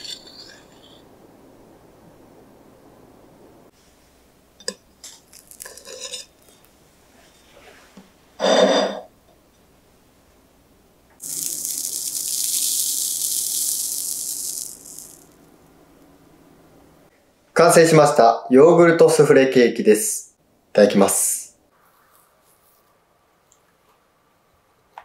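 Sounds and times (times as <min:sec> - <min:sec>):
steady high hiss: 0:09.8 - 0:17.1.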